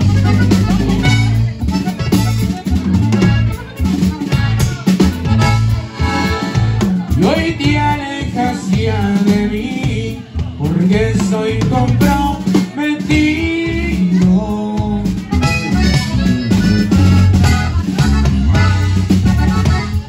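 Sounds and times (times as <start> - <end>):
button accordion: 0.0 - 10.2, 15.1 - 20.0
acoustic guitar: 0.0 - 20.0
drum kit: 0.0 - 20.0
electric bass: 0.0 - 20.0.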